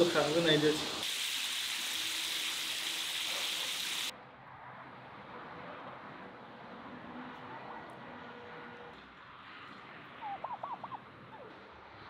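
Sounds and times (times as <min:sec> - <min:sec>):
fish deep-frying in oil: 0:00.0 - 0:04.1
faint outdoor background: 0:00.0 - 0:12.0.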